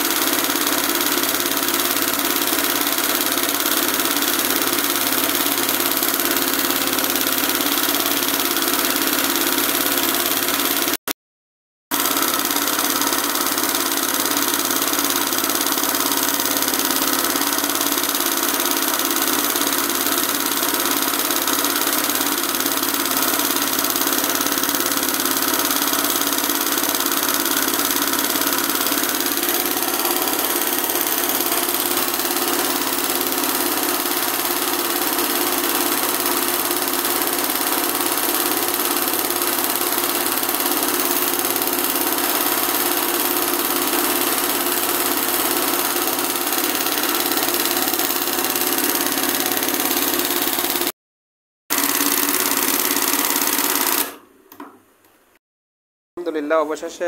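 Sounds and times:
embroidery machine whirring: 11.9s - 50.9s, 51.7s - 54.7s.

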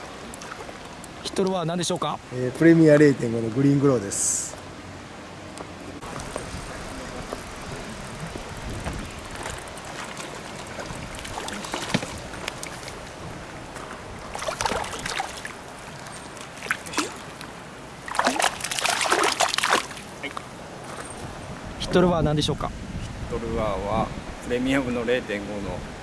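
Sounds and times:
fish splashing at water surface: 14.3s - 17.3s, 18.0s - 20.1s.

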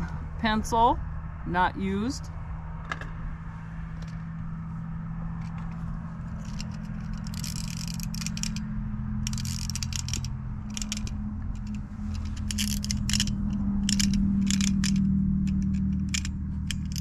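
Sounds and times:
steady low hum: 0.0s - 17.0s
wind-up toy gears clicking: 6.3s - 17.0s.

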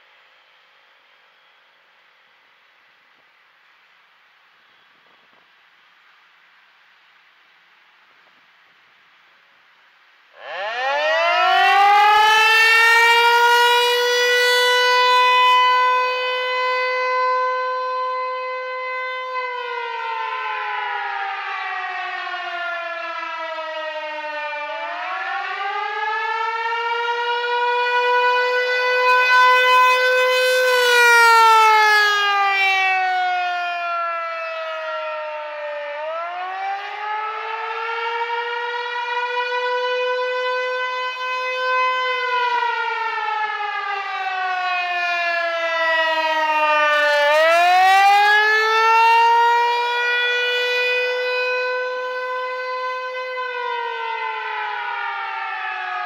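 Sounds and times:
rotating siren wailing: 10.4s - 56.0s.

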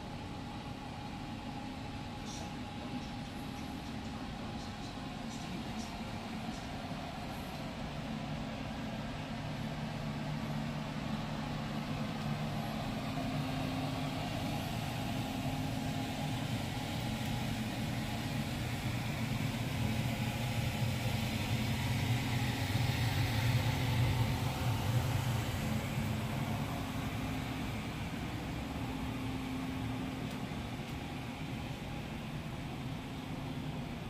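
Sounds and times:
ship machinery hum: 0.0s - 34.0s.

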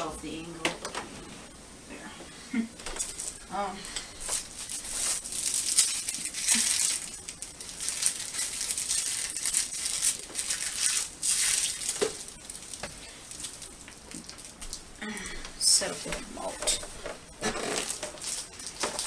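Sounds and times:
packaging rustling and crinkling: 2.8s - 14.8s, 16.6s - 19.0s.

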